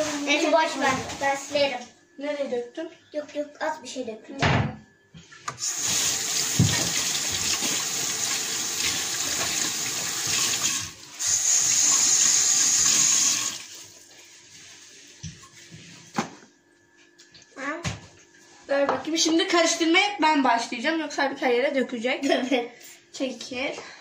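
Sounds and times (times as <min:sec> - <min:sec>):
kitchen tap running: 0:05.4 - 0:14.2.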